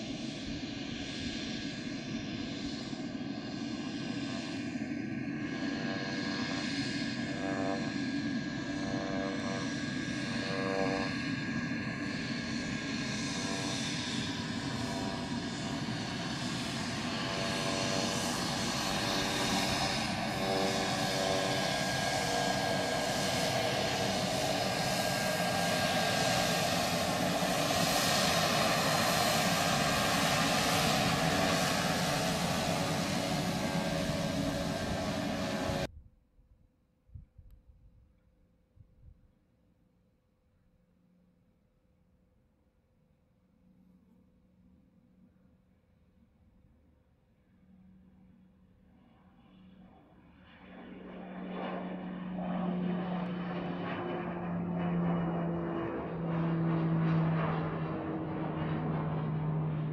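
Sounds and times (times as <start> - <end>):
propeller noise: 0.0 - 35.9, 49.0 - 59.9
turboprop turbine whine: 0.0 - 36.0, 46.2 - 59.9.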